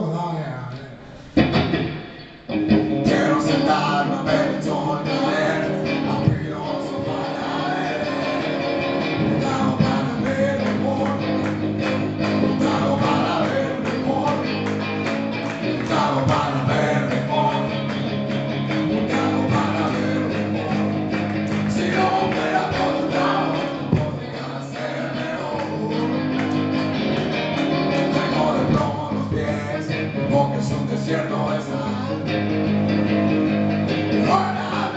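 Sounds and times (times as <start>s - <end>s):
electric guitar: 0.7s - 34.9s
drum beat: 9.2s - 13.9s, 14.5s - 17.6s, 18.8s - 20.2s, 20.8s - 24.6s.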